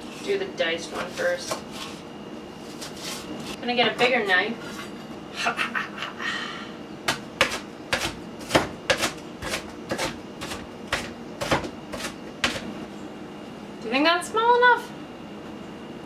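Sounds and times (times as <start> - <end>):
knife chopping on cutting board: 7.1 - 12.6.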